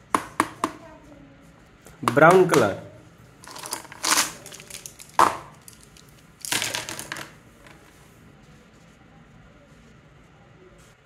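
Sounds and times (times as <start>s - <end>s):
plastic pens clattering and rustling: 3.4s - 7.8s.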